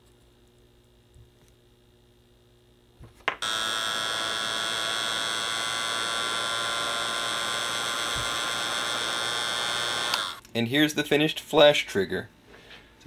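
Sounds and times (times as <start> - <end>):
heat gun fan whining: 3.3 - 10.5
heat gun switch click: 10.1 - 10.3.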